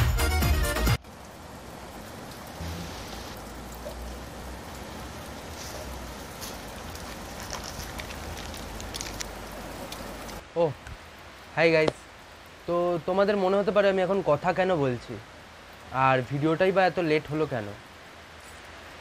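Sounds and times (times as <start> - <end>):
music: 0.0 - 1.0
rain-like hiss: 0.0 - 19.0
plastic pouch crackling: 6.4 - 10.4.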